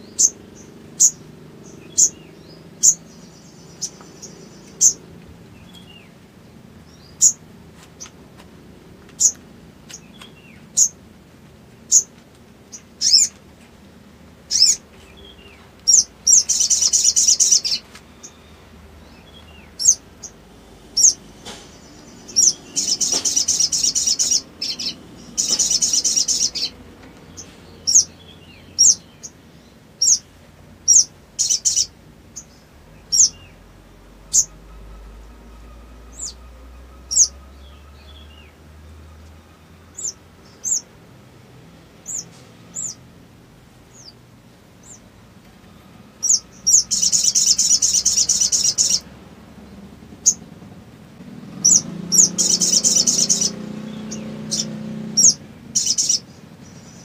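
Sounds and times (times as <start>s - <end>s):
bird chattering trills: 0.0s - 5.1s, 7.0s - 7.4s, 9.2s - 11.0s, 12.7s - 13.3s, 14.5s - 26.8s, 27.4s - 29.4s, 30.0s - 30.3s, 30.9s - 33.6s, 34.2s - 38.3s, 46.2s - 49.1s, 51.6s - 57.0s
bird chirping: 0.0s - 8.2s, 9.1s - 11.0s, 11.8s - 13.4s, 14.5s - 43.1s, 43.9s - 44.2s, 44.8s - 50.5s, 51.2s - 57.0s.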